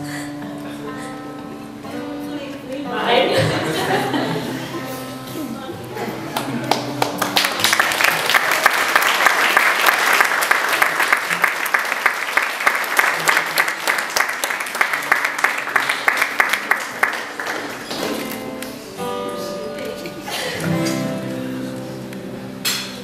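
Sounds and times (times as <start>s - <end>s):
crowd applauding: 6.2s - 18.7s.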